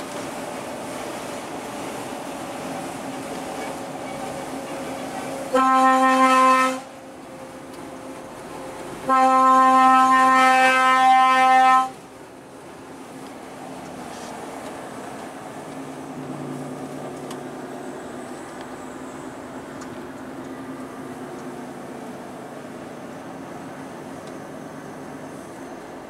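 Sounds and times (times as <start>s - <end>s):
truck horn blasts: 5.5s - 6.9s, 9.1s - 12.0s.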